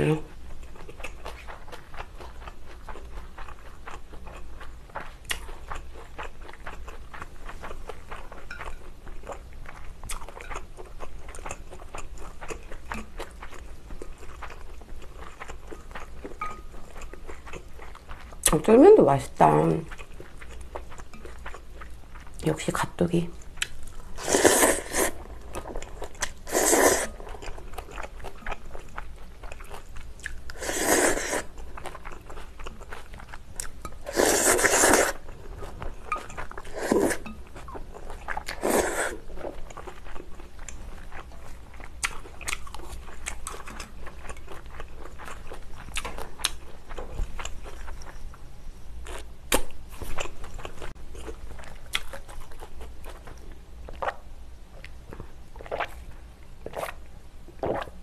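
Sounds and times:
noodles slurped: 0:24.2 - 0:25.2, 0:26.4 - 0:27.2, 0:30.5 - 0:31.5, 0:34.1 - 0:35.2, 0:36.6 - 0:37.3, 0:38.5 - 0:39.2
wet chewing clicks: 0:42.0 - 0:48.2.

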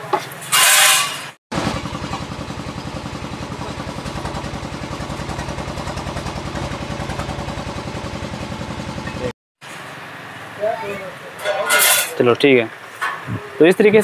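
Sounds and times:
motorcycle engine idling: 0:01.5 - 0:09.3.

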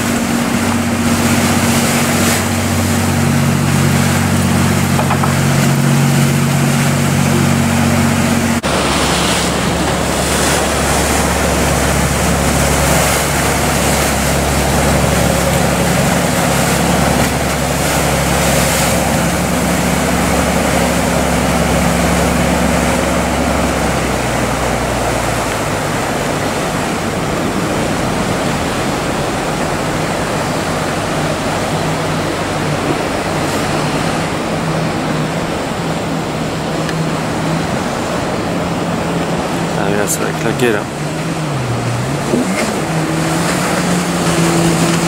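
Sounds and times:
boat diesel engine drone: 0:00.0 - 0:45.0
waves and surf: 0:00.0 - 0:45.0.

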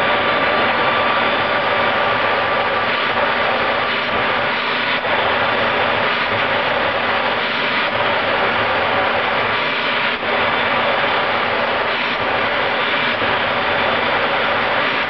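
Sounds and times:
jet engine roar: 0:00.0 - 0:15.0
thin steady whine: 0:00.0 - 0:15.0.

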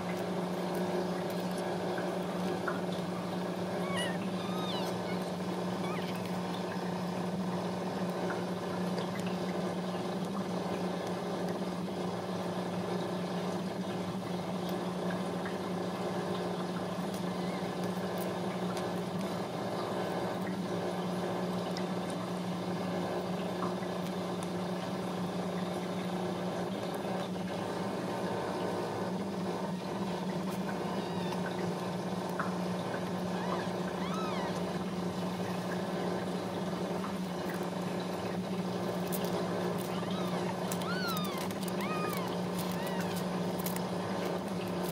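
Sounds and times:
kittens squeaking: 0:02.8 - 0:07.3, 0:17.0 - 0:18.3, 0:30.5 - 0:32.3, 0:32.9 - 0:35.6, 0:38.8 - 0:44.9
cat purring: 0:03.7 - 0:06.8, 0:39.0 - 0:43.9.

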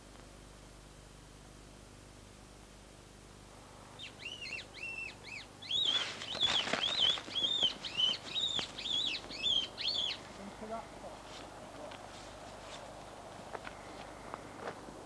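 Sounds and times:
rustling and scuffling: 0:05.8 - 0:15.0.

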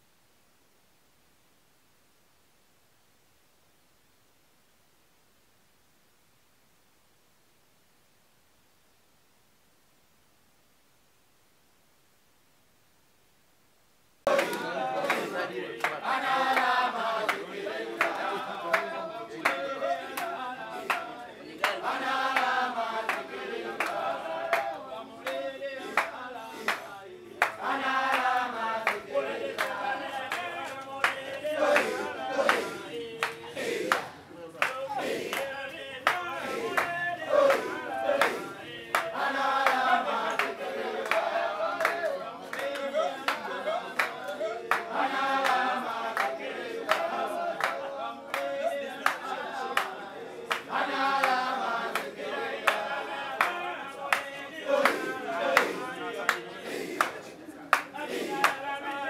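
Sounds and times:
voices singing a chant: 0:14.2 - 0:59.0
hand claps: 0:14.3 - 0:59.0.

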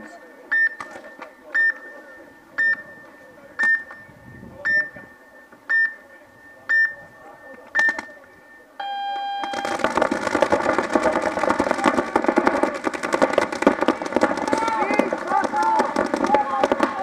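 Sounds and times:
short high beeps: 0:00.0 - 0:09.9.

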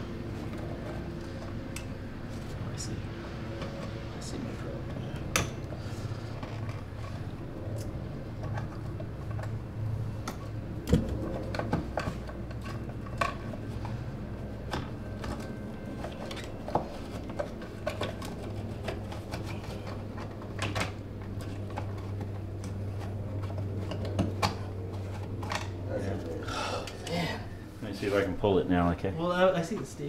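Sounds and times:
steady low hum: 0:00.0 - 0:30.0
hands handling electrical cable: 0:10.2 - 0:25.8.

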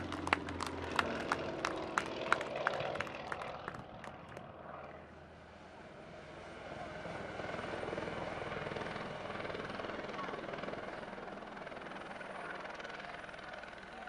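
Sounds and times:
hand claps: 0:00.0 - 0:04.4
helicopter flying past: 0:00.0 - 0:14.0.

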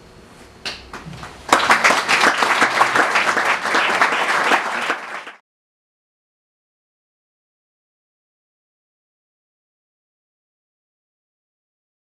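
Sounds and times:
audience applauding: 0:01.2 - 0:05.4.

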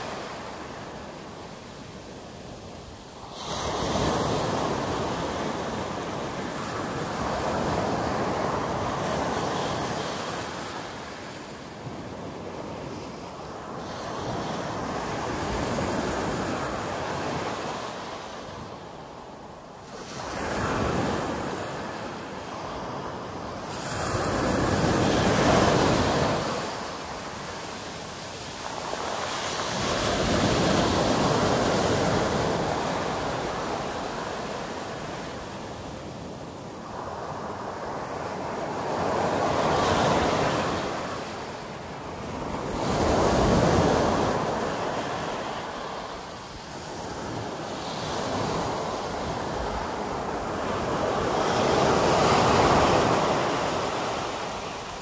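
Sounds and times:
waves washing up pebble beach: 0:23.6 - 0:35.6.

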